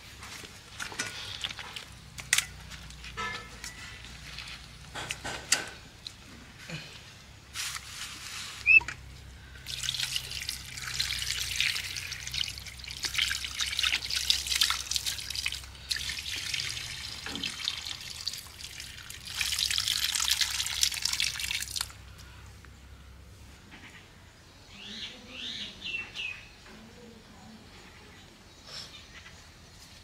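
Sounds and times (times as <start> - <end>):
water splashing and trickling: 0.0 - 6.2, 9.4 - 22.0.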